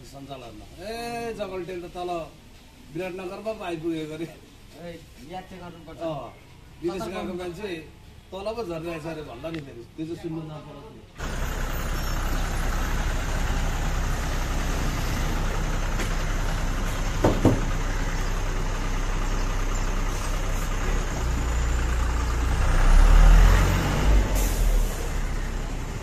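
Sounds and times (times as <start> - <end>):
bus engine idling: 11.1 - 26.0.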